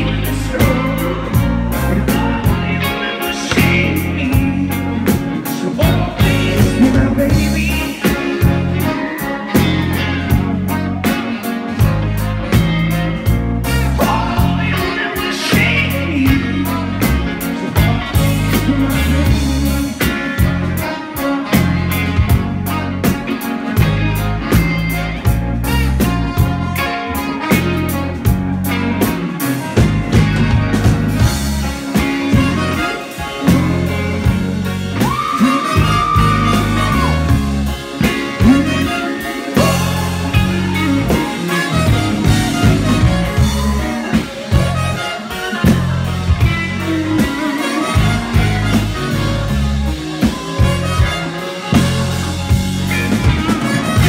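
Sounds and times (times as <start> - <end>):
man singing: 0.0 - 11.3, 12.8 - 22.4, 31.3 - 52.0
drum kit: 0.0 - 54.0
electric guitar: 0.0 - 54.0
saxophone: 0.0 - 54.0.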